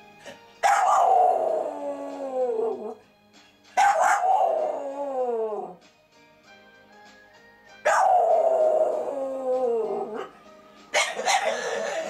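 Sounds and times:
tv theme music: 0.0s - 12.0s
dog howling: 0.7s - 3.0s, 3.8s - 5.8s, 7.9s - 10.4s.

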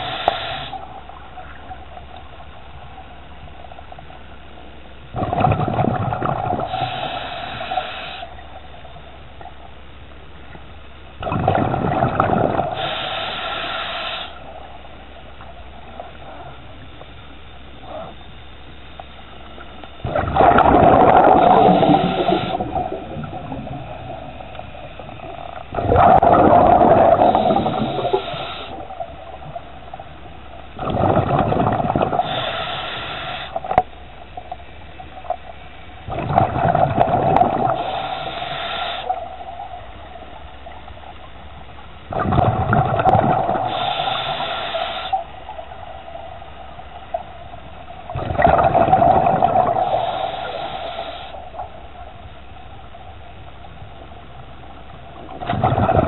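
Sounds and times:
diver breathing through regulator: 0.0s - 1.0s, 6.4s - 8.4s, 12.6s - 14.5s, 20.0s - 23.1s, 26.0s - 29.0s, 32.0s - 33.7s, 37.3s - 39.3s, 43.4s - 45.4s, 49.0s - 51.6s
air bubbles gurgling: 5.1s - 8.2s, 11.2s - 14.2s, 20.0s - 41.1s, 42.0s - 45.8s, 47.1s - 52.0s, 54.8s - 56.0s.

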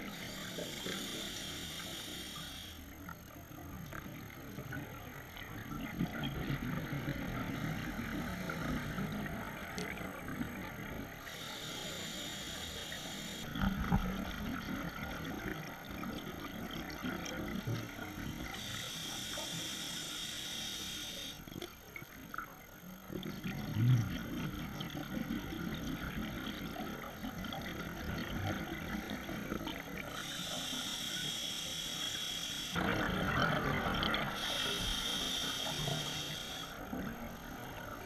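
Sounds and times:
regulator hissing inhalation: 0.0s - 2.9s, 11.2s - 13.5s, 18.5s - 21.4s, 30.1s - 32.8s, 34.3s - 36.8s
exhaled air bubbling: 22.9s - 38.0s.

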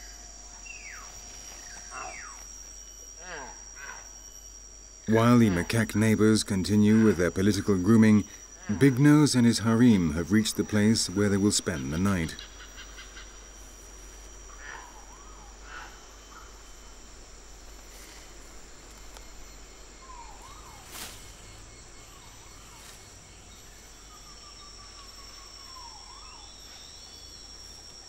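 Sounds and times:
high insect drone: 0.0s - 28.0s
whistling bird calls: 24.0s - 27.9s.

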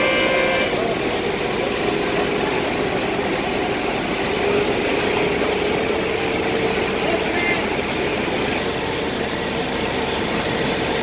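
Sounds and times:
fire engine pump running: 0.0s - 11.0s
water jetting from fire hose: 0.0s - 11.0s.

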